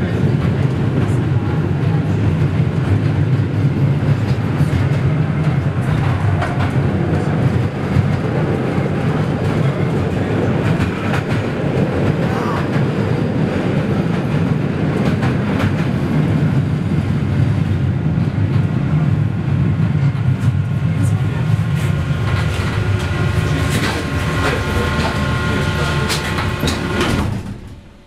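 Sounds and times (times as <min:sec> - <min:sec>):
rattles and clicks: 0:22.2 - 0:27.8.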